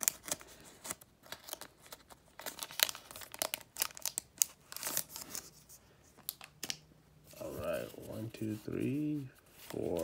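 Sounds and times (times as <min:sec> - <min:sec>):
foil wrapper crinkling: 0:00.0 - 0:05.4.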